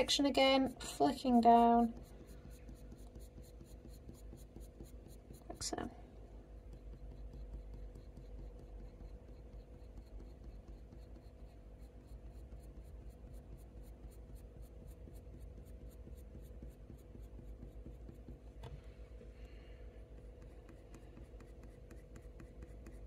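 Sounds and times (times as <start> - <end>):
pencil scratching on paper: 0.0 - 6.0, 6.6 - 18.6, 20.1 - 23.0.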